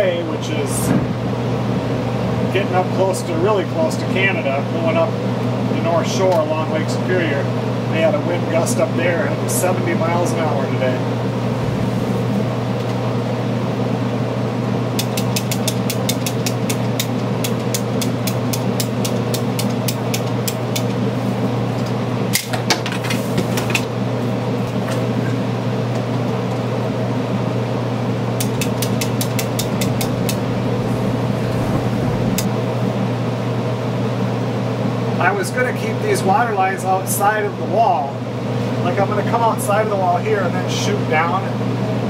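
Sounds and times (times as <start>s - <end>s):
mechanical hum with low drone: 0.0s - 42.0s
rapid even ticking: 28.4s - 32.5s.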